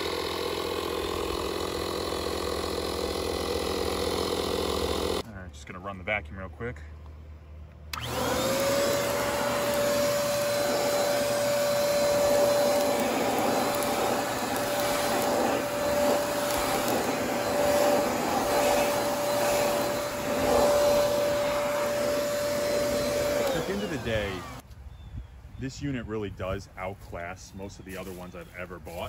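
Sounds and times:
handheld vacuum cleaner whine: 0.0 - 5.2, 7.9 - 24.6.

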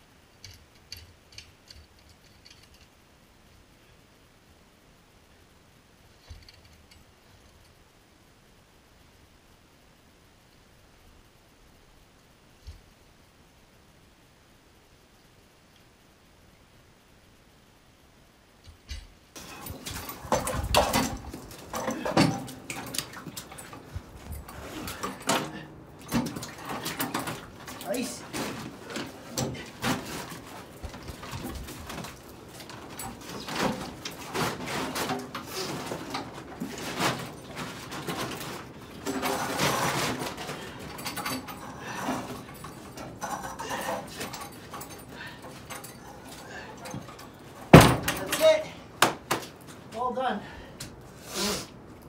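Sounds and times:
knocks and scrapes of metal frame: 18.7 - 50.0.

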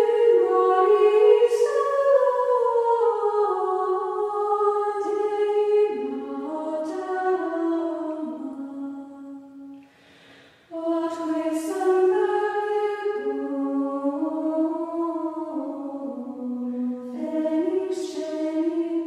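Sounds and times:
unaccompanied choir singing: 0.0 - 9.8, 10.7 - 19.0.

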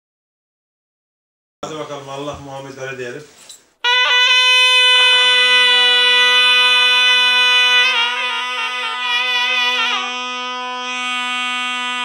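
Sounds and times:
low zurna drone: 3.8 - 12.0
zurnas playing melody: 3.8 - 12.0.

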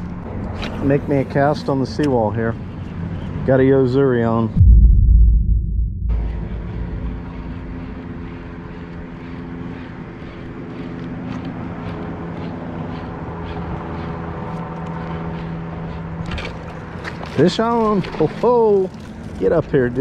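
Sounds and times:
engine humming: 4.6 - 16.2.

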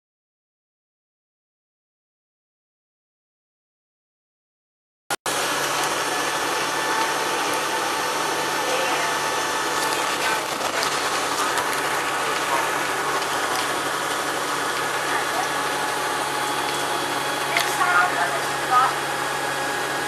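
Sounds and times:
bus engine running: 5.3 - 20.0
road and cabin noise: 5.3 - 20.0.

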